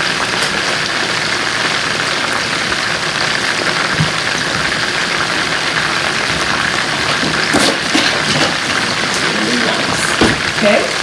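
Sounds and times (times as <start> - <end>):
chicken sizzling in oil: 0.0 - 11.0.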